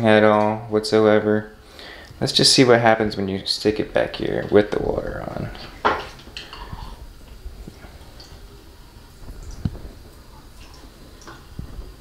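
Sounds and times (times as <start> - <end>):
faint water trickling in drain: 3.6 - 12.0.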